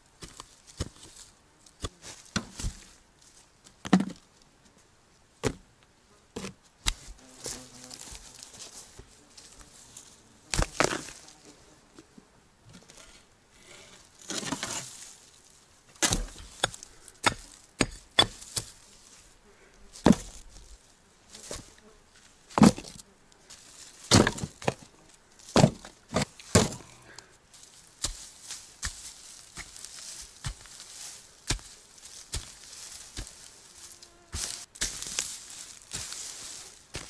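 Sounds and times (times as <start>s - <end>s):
soil clods thudding: 6.4s - 9.1s, 10.5s - 11.3s, 15.9s - 18.9s, 19.9s - 20.7s, 22.5s - 37.0s
insects buzzing: 7.1s - 12.4s, 29.2s - 37.0s.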